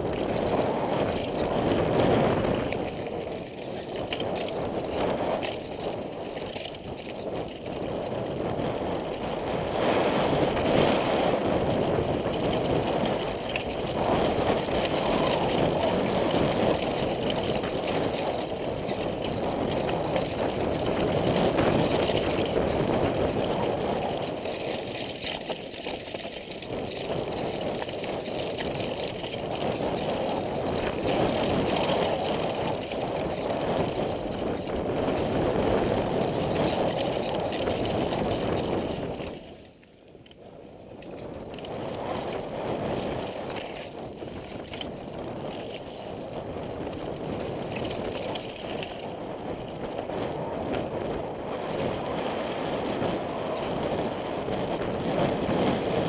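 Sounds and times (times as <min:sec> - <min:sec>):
bike knocking and rattling: 0:00.0 - 0:56.0
rushing noise of bike ride: 0:00.0 - 0:56.0.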